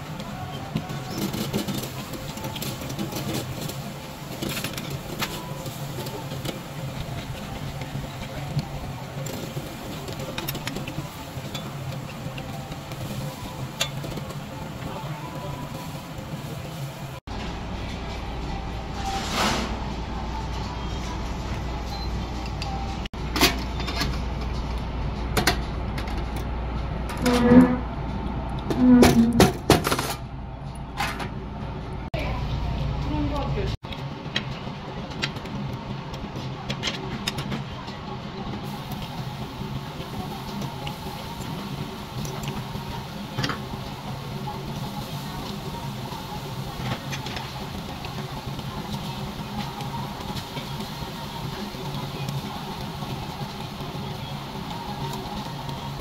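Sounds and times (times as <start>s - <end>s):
meat sizzling on a grill: 0.0s - 17.2s, 38.6s - 56.0s.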